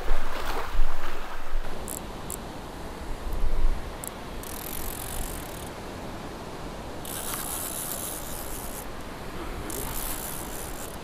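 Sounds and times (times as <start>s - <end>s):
surf washing: 0.0s - 4.5s, 5.1s - 11.0s
fishing reel whirring: 4.0s - 5.7s, 7.0s - 8.9s, 9.6s - 11.0s.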